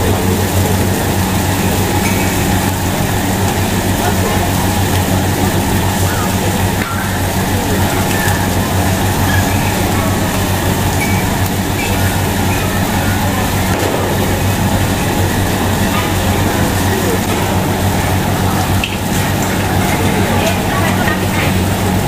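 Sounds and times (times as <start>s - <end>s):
mechanical drone: 0.0s - 22.0s.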